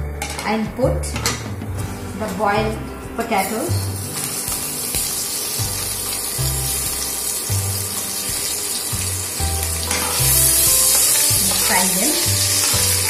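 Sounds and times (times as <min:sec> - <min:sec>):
background music: 0:00.0 - 0:13.0
oil sizzling in a wok: 0:03.2 - 0:13.0.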